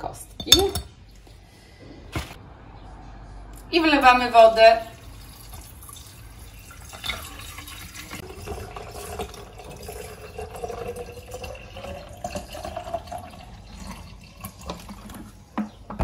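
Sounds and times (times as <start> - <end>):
water pouring into a carafe: 4.9 - 15.5.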